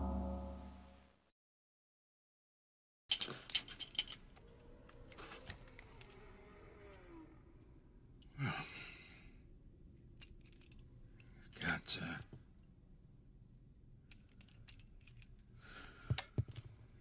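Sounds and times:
metal cartridges clicking: 3.1s - 4.2s, 10.2s - 11.8s, 14.0s - 15.5s
man sighing: 8.4s - 9.2s.

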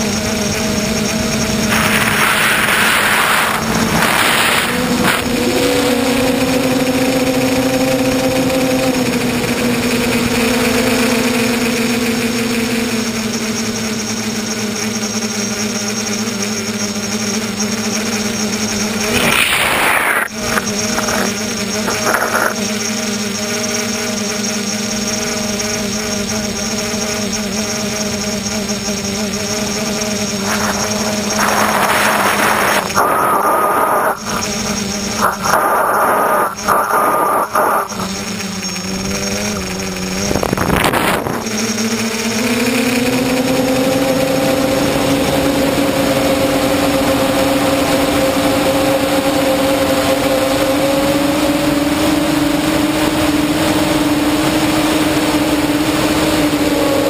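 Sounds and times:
drone motors and propellers droning: 0.0s - 57.0s
rushes of air: 1.2s - 6.1s, 18.9s - 22.6s, 30.2s - 41.6s.

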